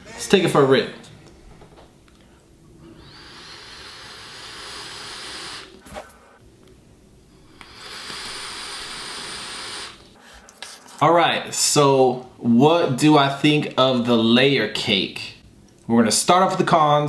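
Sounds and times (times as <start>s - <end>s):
hiss of air drawn through atomizer: 2.9s - 6.0s, 7.5s - 10.2s.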